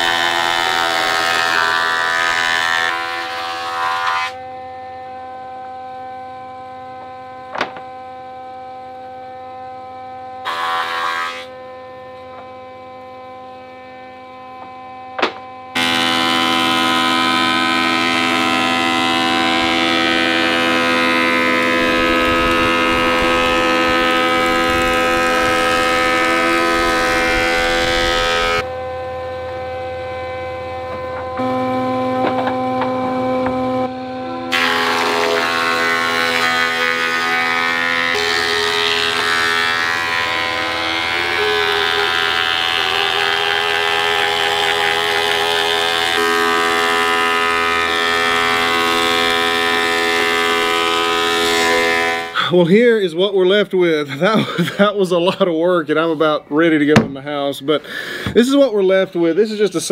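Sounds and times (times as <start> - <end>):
planer cutting wood board: 0.0 - 4.5, 10.4 - 52.6
thickness planer motor humming: 0.0 - 52.5.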